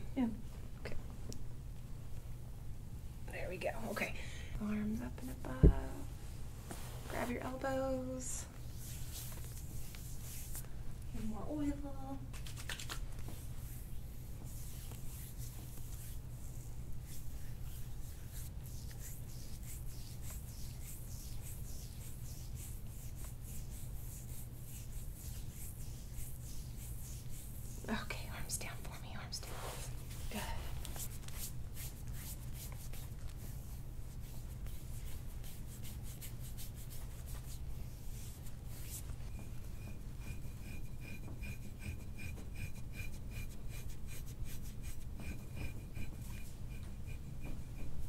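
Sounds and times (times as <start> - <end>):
low steady hum: 0.0 - 48.0
hands swishing over skin: 8.7 - 10.7, 12.3 - 27.8, 29.4 - 48.0.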